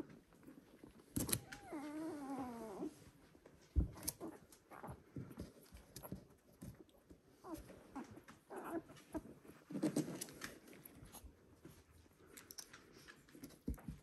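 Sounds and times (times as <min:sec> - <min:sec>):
puppy whining: 0:00.7 - 0:03.1, 0:07.3 - 0:10.4.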